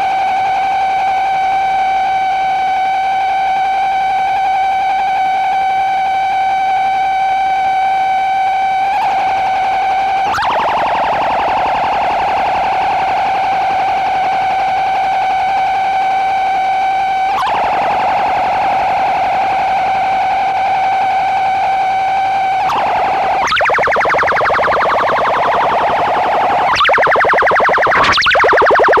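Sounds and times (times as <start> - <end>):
loud electronic tone: 0.0 - 29.0
sharp glitch: 22.7 - 29.0.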